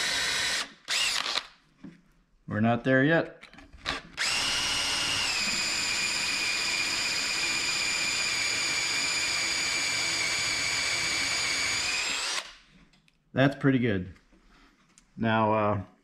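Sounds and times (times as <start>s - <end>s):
drill whining into metal: 0.0s - 1.5s, 3.8s - 12.6s.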